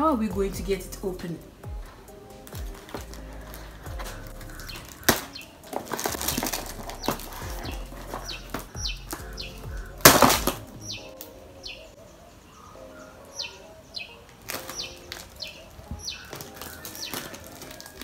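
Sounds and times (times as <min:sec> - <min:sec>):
bird chirping: 0:00.3 - 0:18.0
packaging rustling: 0:02.4 - 0:09.2, 0:14.4 - 0:18.0.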